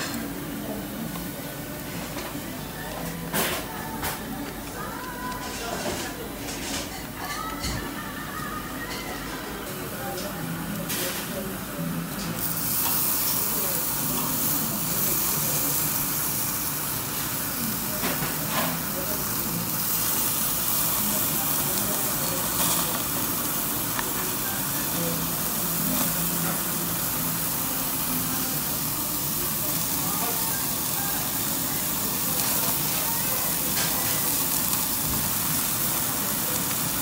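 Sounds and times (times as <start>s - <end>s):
meat sizzling on a grill: 8.2s - 37.0s.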